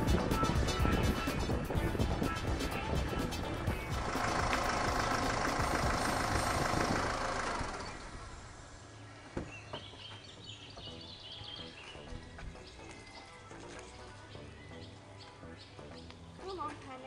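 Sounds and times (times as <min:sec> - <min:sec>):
car engine running: 0:00.0 - 0:09.1.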